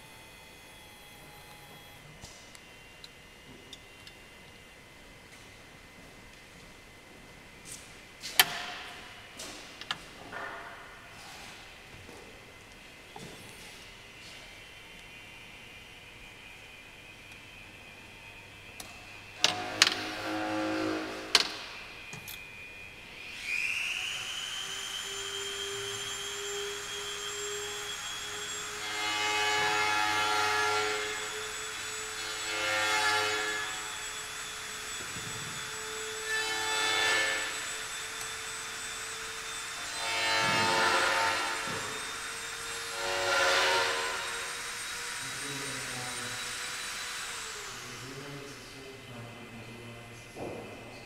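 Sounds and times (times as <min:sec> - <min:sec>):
motor whirring surges: 0:00.0 - 0:02.2
electric motors whining: 0:00.0 - 0:04.3, 0:12.6 - 0:49.9.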